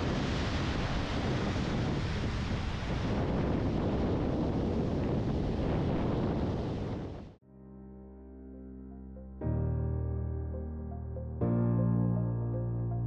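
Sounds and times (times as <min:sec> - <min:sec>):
surf washing over rocks: 0:00.0 - 0:07.3
wind on microphone: 0:00.0 - 0:07.4.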